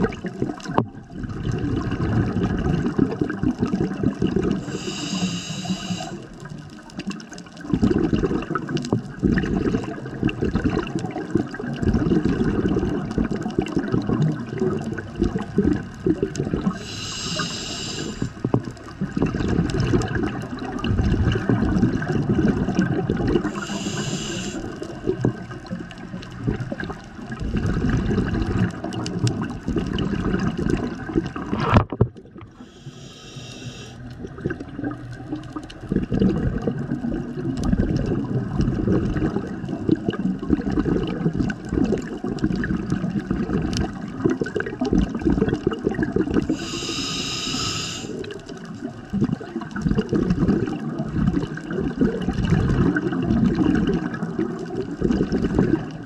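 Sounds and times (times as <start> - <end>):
exhaust bubbles bubbling: 0.0 - 33.0, 34.0 - 56.0
regulator inhale hiss: 4.6 - 6.4, 16.8 - 18.5, 23.4 - 24.9, 32.5 - 34.2, 46.5 - 48.4.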